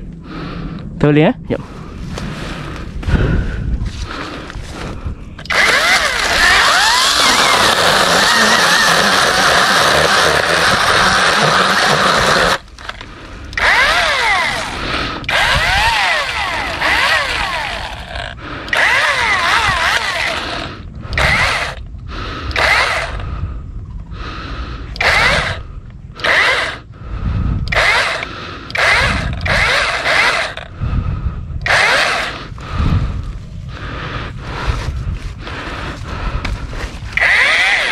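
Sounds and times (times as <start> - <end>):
electric chainsaw cutting: 5.4 - 13.0, 13.6 - 21.8, 22.5 - 23.2, 25.0 - 25.6, 26.2 - 26.9, 27.7 - 30.7, 31.6 - 32.5, 37.1 - 37.9.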